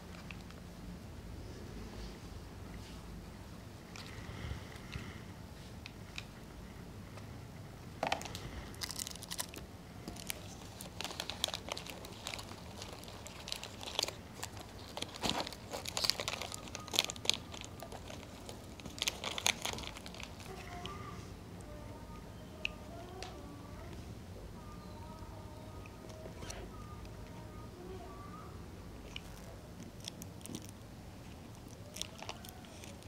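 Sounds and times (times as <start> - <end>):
plastic wrappers crinkling: 8.0 - 21.0, 29.1 - 33.0.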